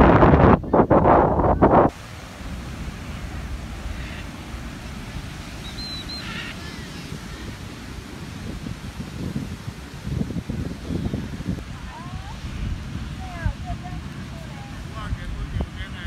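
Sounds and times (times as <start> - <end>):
wind buffeting the microphone: 0.0 - 16.0
waves breaking on a beach: 1.6 - 16.0
faint high chirp: 5.6 - 7.1.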